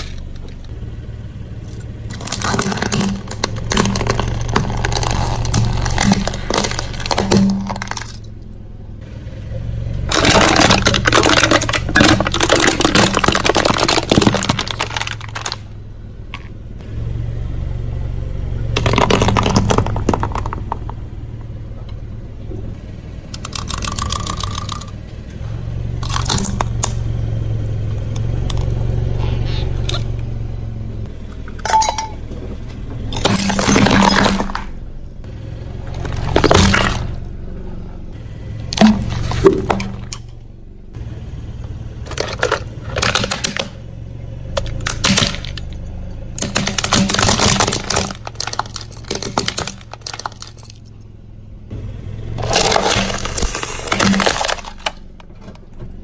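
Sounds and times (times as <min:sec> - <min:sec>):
car engine running: 0:00.0 - 0:56.0
tyres crushing objects: 0:01.6 - 0:08.4, 0:10.0 - 0:16.6, 0:18.7 - 0:21.1, 0:23.4 - 0:25.0, 0:26.0 - 0:27.0, 0:31.1 - 0:34.8, 0:35.8 - 0:37.3, 0:38.7 - 0:40.3, 0:42.0 - 0:43.9, 0:44.5 - 0:50.9, 0:52.3 - 0:56.0.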